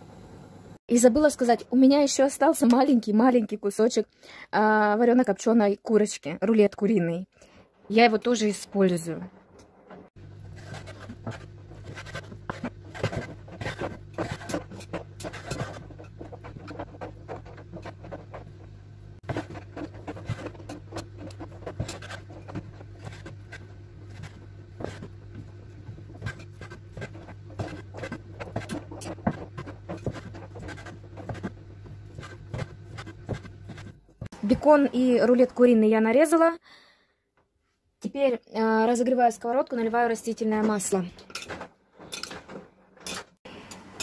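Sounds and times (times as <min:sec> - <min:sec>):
steady low hum: 0:07.6 - 0:35.0.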